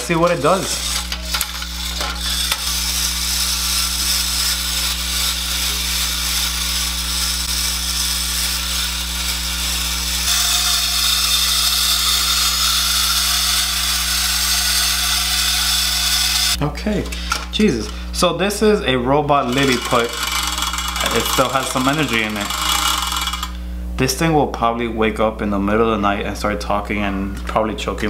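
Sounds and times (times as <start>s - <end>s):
clockwork toy motor whirring: 0.0s - 16.6s, 19.4s - 23.6s.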